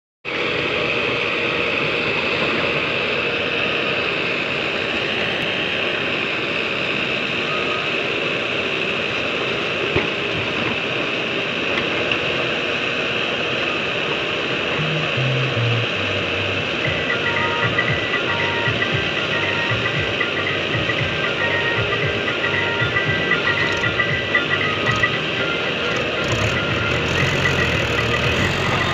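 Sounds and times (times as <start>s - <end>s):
diesel engines running: 0.3s - 28.9s
backhoe digging soil: 25.8s - 28.9s.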